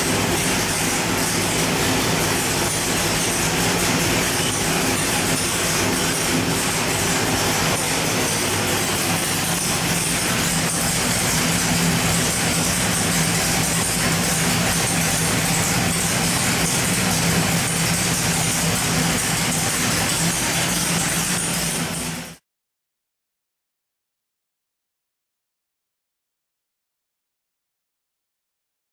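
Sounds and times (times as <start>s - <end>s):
engine running steadily: 0.0s - 22.4s.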